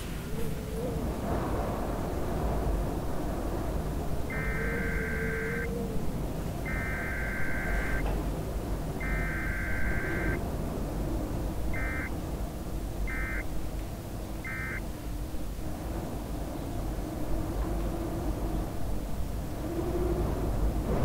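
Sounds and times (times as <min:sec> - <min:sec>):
steady low rumble: 0:01.3 - 0:17.0
electronic beeps: 0:04.3 - 0:05.7, 0:06.7 - 0:08.1, 0:09.0 - 0:10.4, 0:11.8 - 0:12.1, 0:13.1 - 0:13.5, 0:14.4 - 0:14.8.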